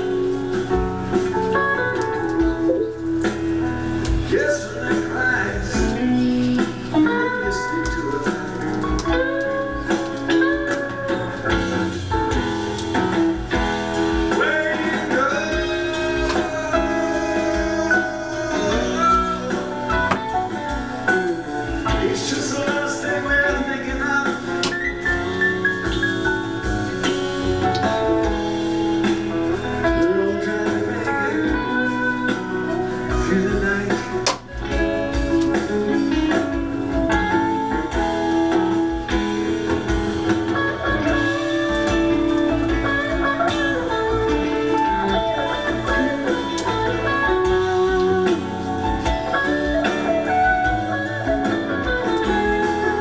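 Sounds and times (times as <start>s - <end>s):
guitar notes: 0.0s - 53.0s.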